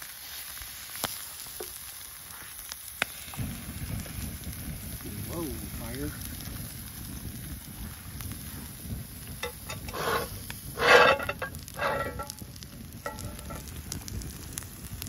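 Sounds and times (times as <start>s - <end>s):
potatoes sizzling in pan: 0.0s - 15.0s
utensil scraping pan: 9.4s - 13.7s.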